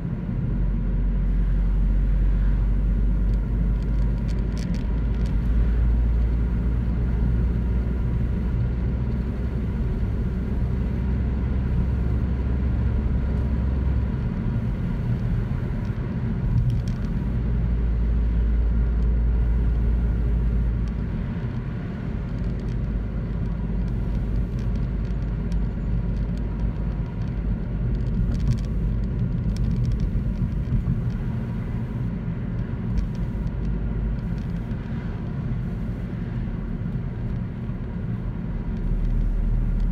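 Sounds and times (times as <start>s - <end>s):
car engine and tyre rumble: 0.0s - 39.9s.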